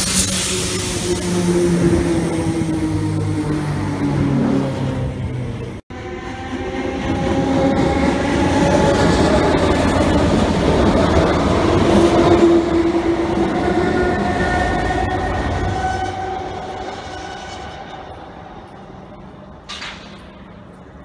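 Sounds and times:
train hum: 0.0 - 21.0
train wheels clattering on rails: 6.9 - 21.0.

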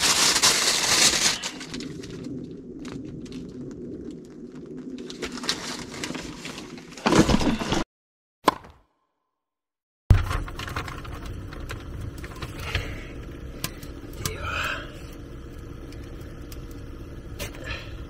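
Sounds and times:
low hum: 0.4 - 6.6, 10.1 - 18.0.

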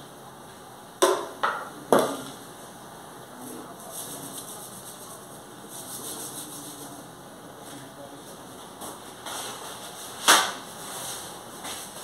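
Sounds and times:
faint scraping and rustling: 3.4 - 12.0.

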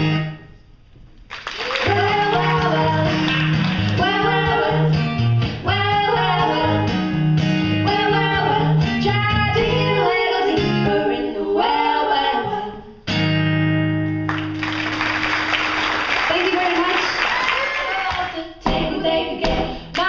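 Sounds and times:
acoustic guitar: 0.0 - 1.0, 1.8 - 16.4
applause: 1.3 - 4.0, 14.3 - 18.4
women singing in harmony: 1.8 - 7.0, 7.8 - 13.0, 17.0 - 20.0.

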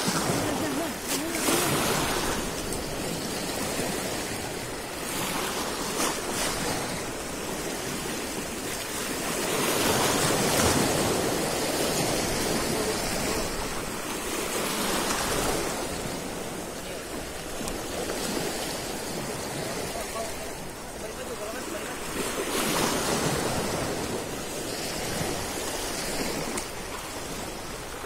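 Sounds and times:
waves breaking on concrete: 0.0 - 28.0.

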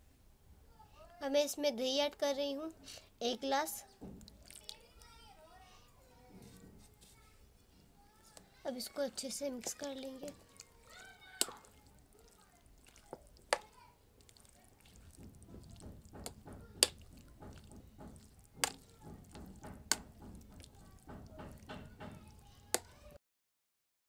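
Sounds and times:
wet squelch of stirred food: 4.0 - 23.2.

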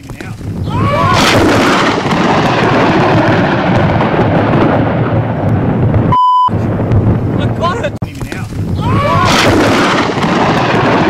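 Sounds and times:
thunder rumbling: 0.4 - 11.0
brief high beep: 6.1 - 6.5.

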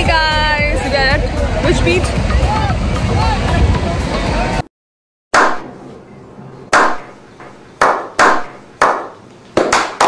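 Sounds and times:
hand claps with echo: 7.8 - 10.0.

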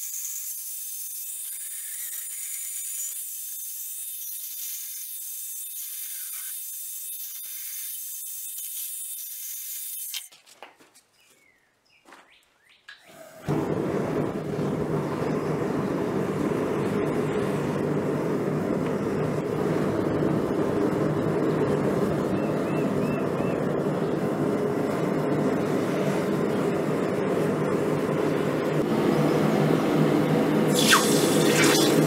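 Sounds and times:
forge burner rushing: 13.4 - 22.2, 24.4 - 32.0.

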